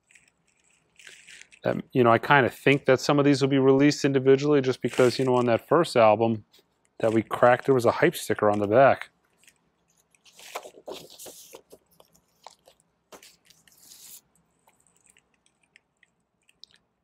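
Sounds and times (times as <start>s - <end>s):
paper sleeve rustling and crinkling: 0.0s - 1.6s, 4.7s - 5.7s, 7.0s - 8.8s, 9.4s - 15.2s.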